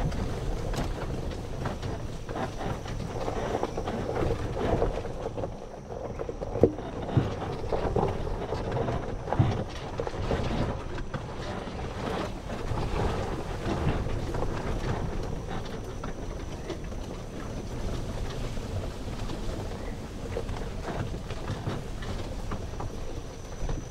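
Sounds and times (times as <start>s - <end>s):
golf cart driving with rattling: 0.0s - 23.9s
wind buffeting microphone: 0.0s - 23.9s.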